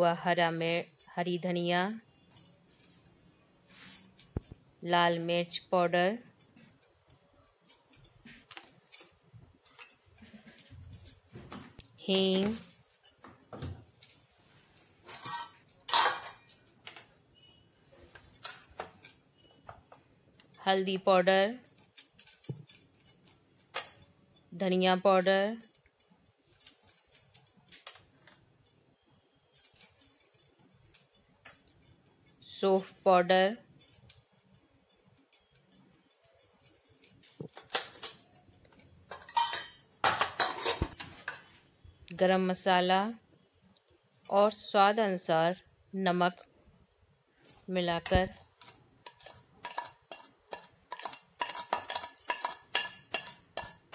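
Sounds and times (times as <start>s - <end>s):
utensils and dishes clinking: 0.0s - 32.6s, 33.4s - 41.6s, 47.4s - 53.9s.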